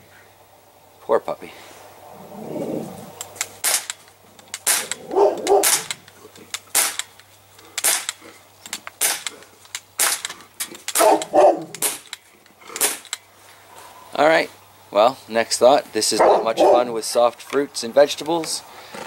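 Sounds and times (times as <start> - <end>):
pistol shots snapping: 3.2 - 13.2.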